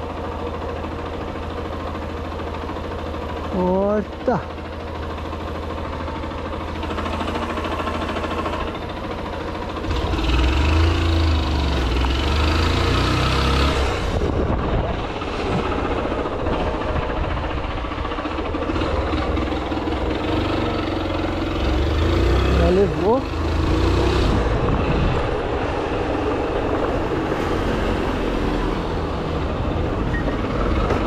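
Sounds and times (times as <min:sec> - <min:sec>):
vehicle engine rumbling: 0:00.0 - 0:31.0.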